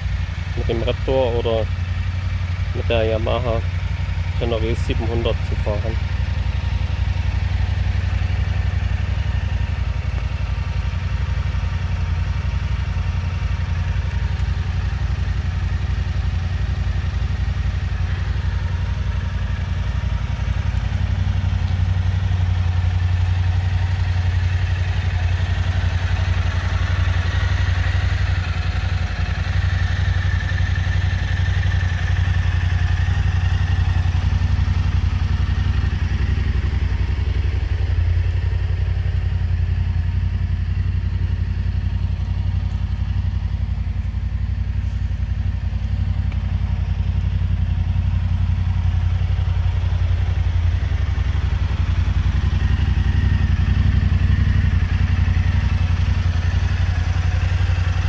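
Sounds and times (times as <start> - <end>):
vehicle engine idling: 0.0 - 58.0.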